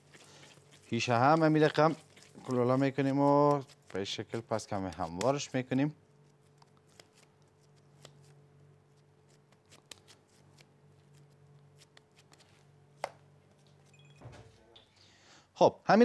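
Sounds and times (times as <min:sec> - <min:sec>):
hands patting meat mixture: 0:00.0 - 0:08.3
low steady hum: 0:00.0 - 0:16.0.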